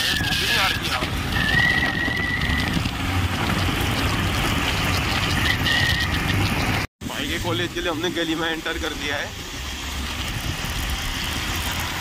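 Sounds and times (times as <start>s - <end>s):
high whistle: 0.0s - 2.8s
motorcycle engine rumble: 0.0s - 12.0s.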